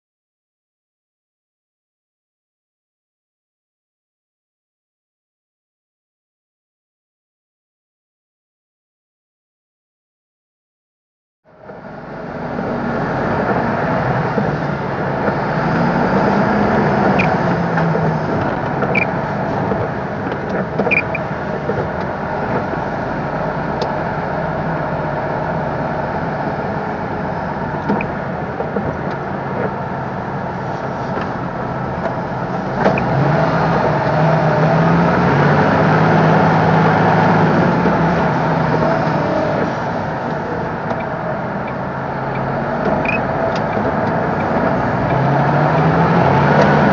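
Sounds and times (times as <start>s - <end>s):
road and cab noise: 11.4s - 46.9s
truck diesel engine: 11.5s - 46.9s.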